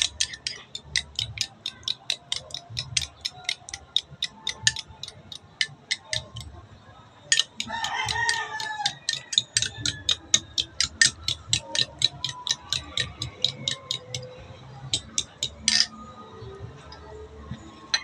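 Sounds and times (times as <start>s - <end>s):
metal spoon beating eggs in cup: 0.0s - 6.5s, 7.3s - 14.3s, 14.9s - 15.9s
rooster crowing: 7.6s - 10.2s.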